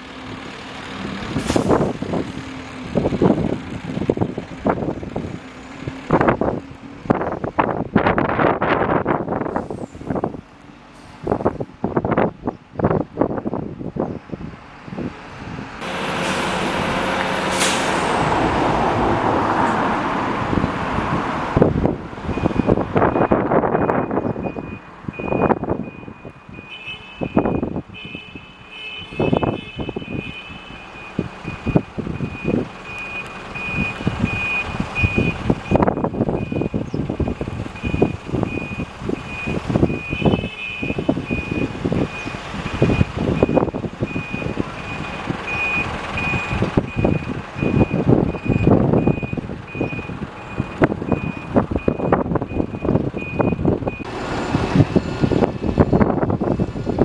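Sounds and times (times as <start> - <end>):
rumbling engine: 0.0 - 26.6, 29.2 - 57.0
wind noise: 0.9 - 57.0
reversing alarm beeping: 22.3 - 27.8, 30.9 - 54.1.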